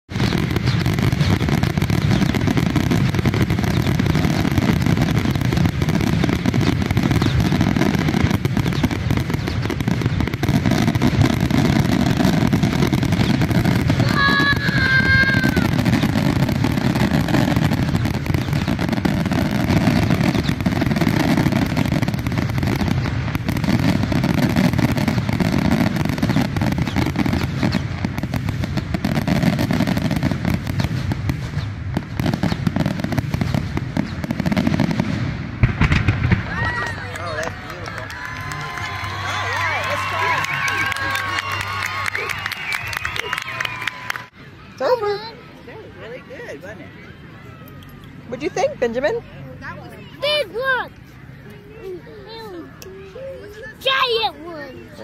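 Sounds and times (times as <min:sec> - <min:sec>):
fireworks bangs and crackling: 0:00.1 - 0:45.4
child roaring: 0:14.0 - 0:15.7.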